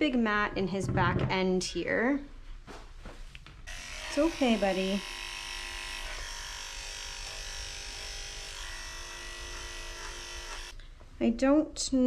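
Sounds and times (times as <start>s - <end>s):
electric pet clippers humming: 3.7s - 10.8s.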